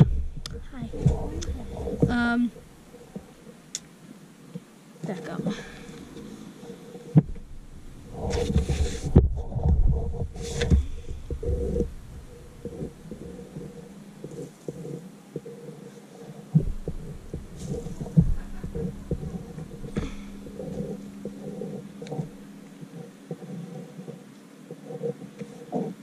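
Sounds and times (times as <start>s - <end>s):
faint steady hum: 0.0s - 26.0s
low thumps through wooden board: 8.2s - 14.4s, 16.5s - 22.5s.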